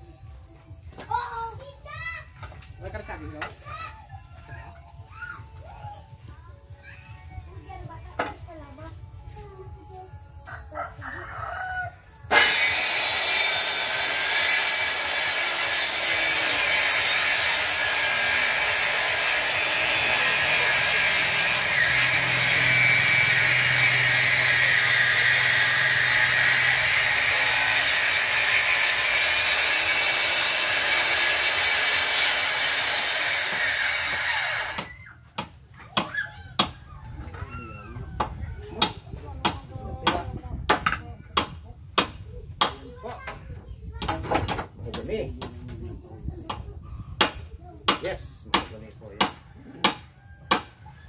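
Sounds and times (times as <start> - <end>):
circular saw cutting wood: 12.3 - 34.9.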